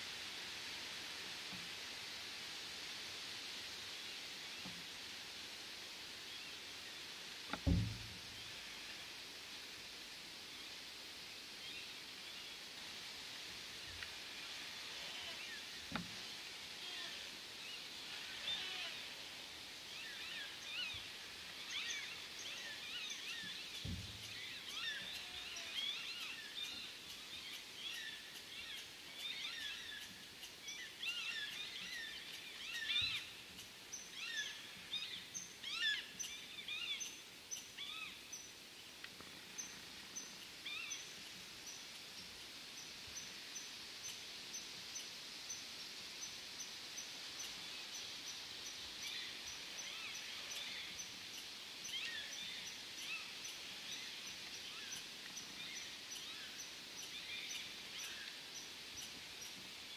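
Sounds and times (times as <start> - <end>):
faint hiss: 0.0 - 59.9.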